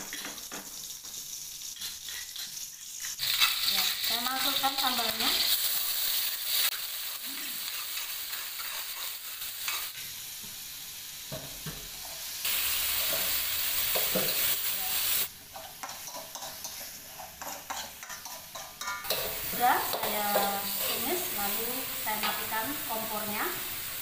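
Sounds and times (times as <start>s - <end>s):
sambal sizzling in hot oil: 0.0s - 24.0s
metal spoon scraping a wok: 1.8s - 6.6s, 7.5s - 10.0s, 12.0s - 21.4s.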